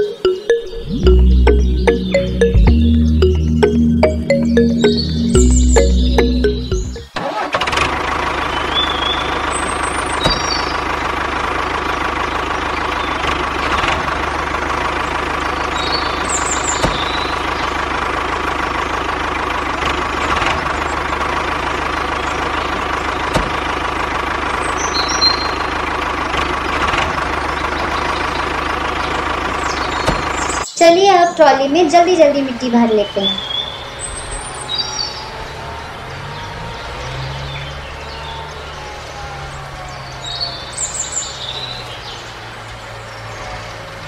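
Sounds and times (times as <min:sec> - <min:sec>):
short high chirps: 0:00.0 - 0:07.2.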